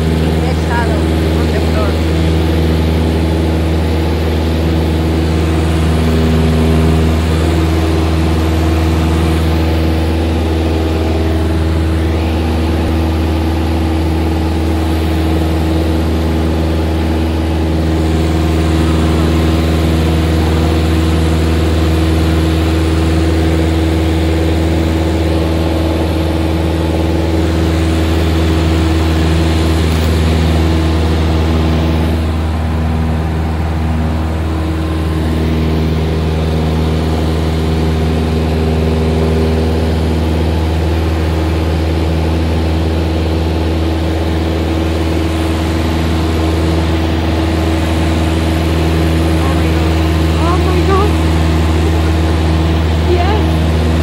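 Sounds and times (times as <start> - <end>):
light aircraft engine droning: 0.0 - 54.0.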